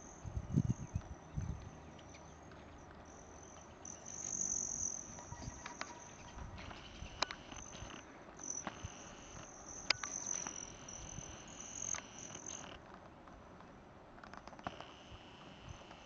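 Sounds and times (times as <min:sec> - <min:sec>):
sharp clicks: 0:06.6 - 0:12.8.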